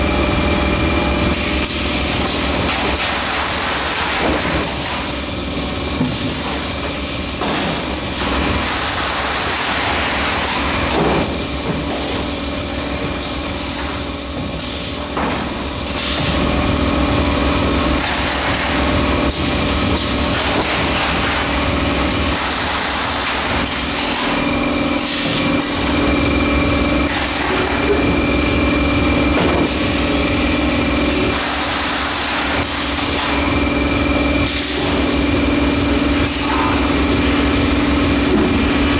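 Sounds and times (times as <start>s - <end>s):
machine humming: 0.0s - 38.9s
pneumatic hiss: 13.2s - 16.4s, 25.0s - 26.0s, 34.4s - 35.1s, 36.1s - 36.9s.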